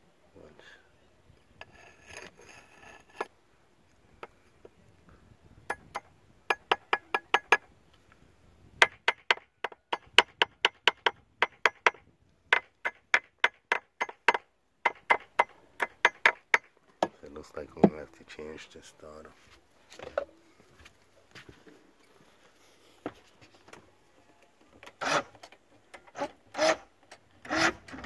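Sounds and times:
metal bar tapping on metal: 0:05.7 - 0:07.6.

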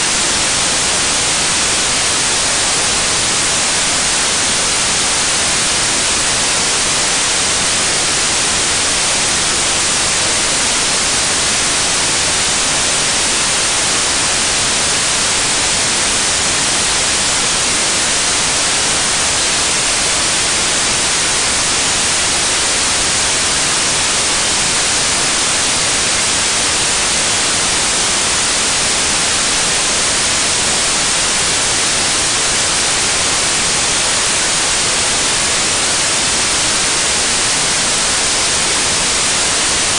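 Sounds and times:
static hiss: 0:00.0 - 0:39.9.

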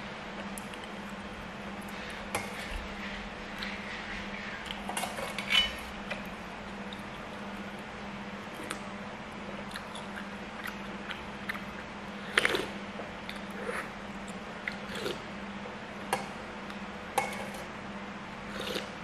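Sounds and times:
steady low hum: 0:00.0 - 0:19.0
sipping and chewing: 0:09.6 - 0:13.6.

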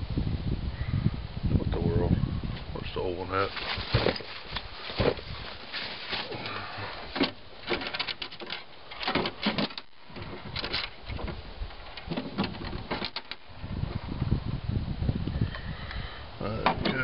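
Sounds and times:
plastic parts clicking and rattling: 0:03.5 - 0:13.5.

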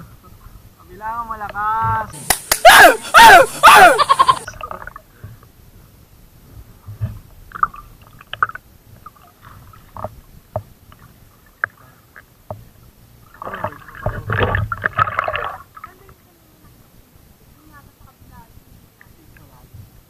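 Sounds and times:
water sloshing and splashing: 0:04.4 - 0:05.4, 0:06.9 - 0:16.3.

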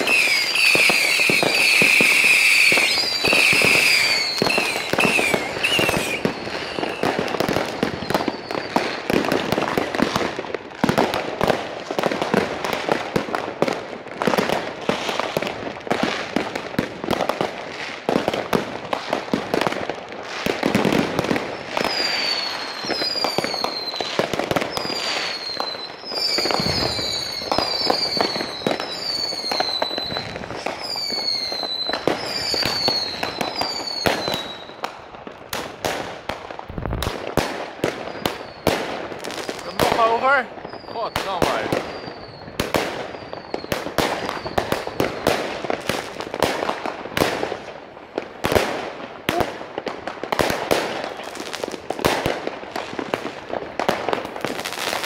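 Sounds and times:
firework whistles falling in pitch: 0:00.0 - 0:09.2, 0:21.5 - 0:34.8, 0:37.9 - 0:38.8, 0:39.7 - 0:45.4
fireworks bangs and crackles: 0:00.0 - 0:55.0.

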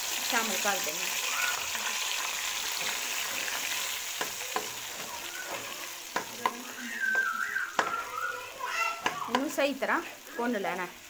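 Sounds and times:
paste sizzling in hot oil: 0:00.0 - 0:11.0
metal spatula stirring: 0:01.7 - 0:10.3
spatula knocking against pan: 0:04.2 - 0:08.2, 0:09.0 - 0:09.6.

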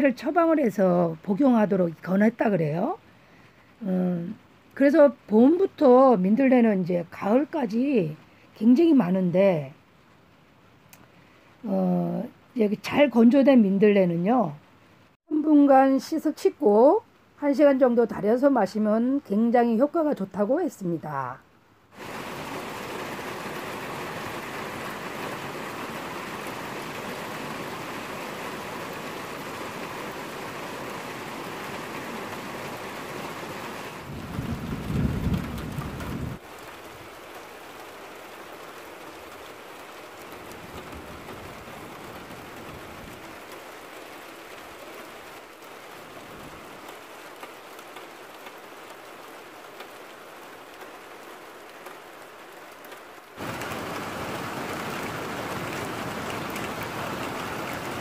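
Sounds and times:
rain falling: 0:00.0 - 0:58.0
low rumble of thunder: 0:34.0 - 0:36.4.

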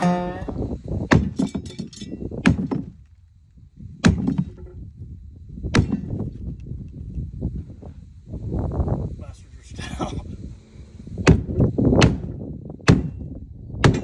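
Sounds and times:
sledgehammer striking wooden crate: 0:01.1 - 0:01.8, 0:02.4 - 0:03.0, 0:04.0 - 0:04.7, 0:05.7 - 0:06.1, 0:11.3 - 0:13.2, 0:13.8 - 0:14.0.

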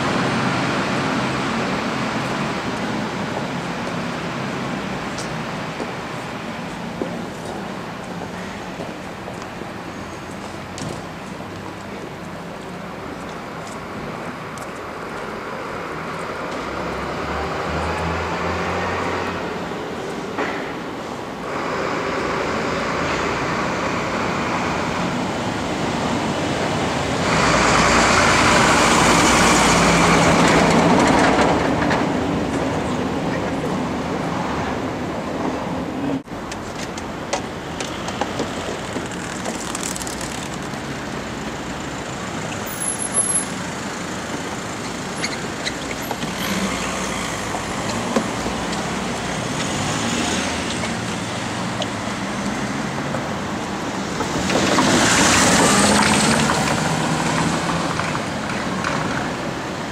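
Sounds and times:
city street traffic: 0:00.0 - 0:59.9
vehicle passing close: 0:46.3 - 0:59.6.

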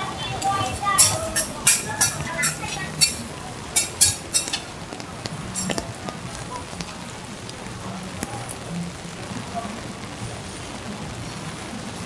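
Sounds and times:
rain hissing on street: 0:00.0 - 0:12.0
sharp drip ticks: 0:00.4 - 0:08.4.

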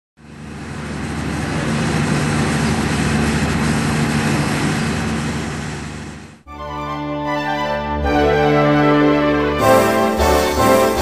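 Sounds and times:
low engine-like hum: 0:00.2 - 0:06.5.

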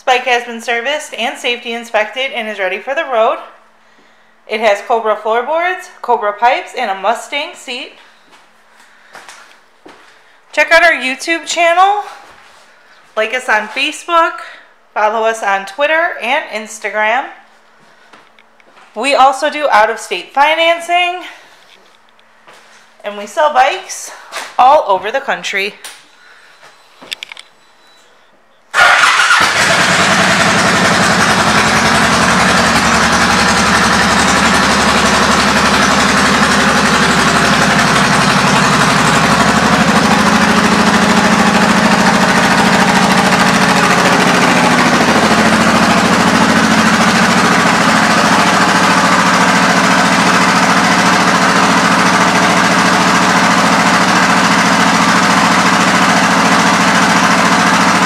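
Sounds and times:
motorcycle engine starting and idling: 0:28.7 - 0:58.0.

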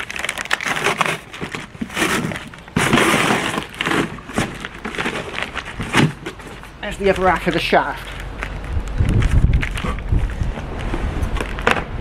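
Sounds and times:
cardboard box being handled: 0:00.2 - 0:07.2.

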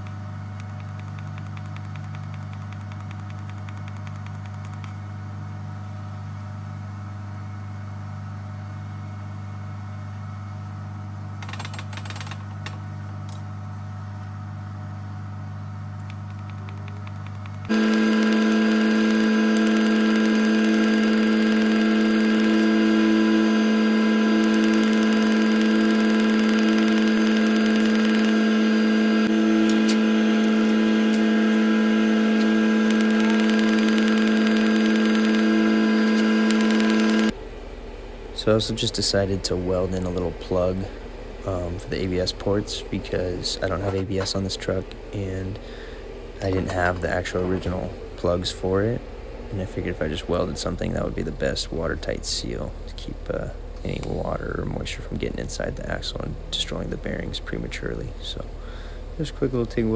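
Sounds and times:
steady low hum: 0:00.0 - 0:59.9
welding arc buzz and hiss: 0:15.9 - 0:37.8.

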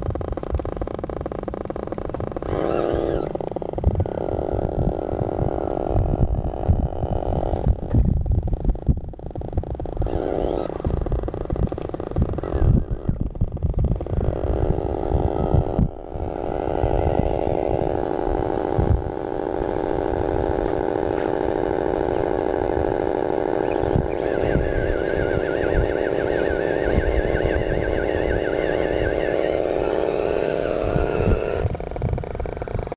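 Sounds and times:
electric motor whining: 0:00.0 - 0:32.9.

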